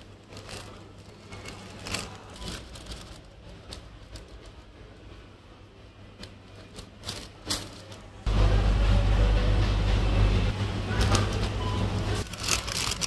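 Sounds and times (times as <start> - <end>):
plastic wrappers crinkling: 0.0 - 4.9, 6.5 - 8.2, 10.9 - 13.0
low steady hum: 0.0 - 13.0.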